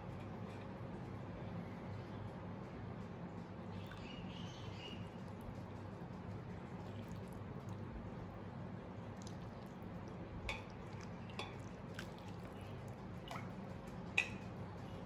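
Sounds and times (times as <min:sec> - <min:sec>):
steady low hum: 0:00.0 - 0:15.0
sauce dripping: 0:04.8 - 0:14.5.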